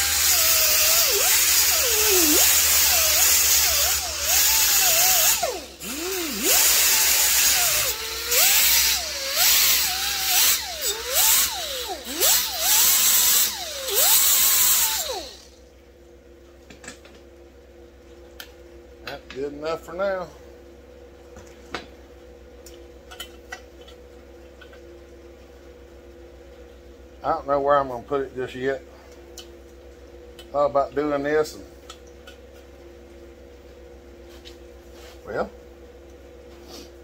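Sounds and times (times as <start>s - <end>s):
air die grinder grinding metal: 0.0s - 15.5s.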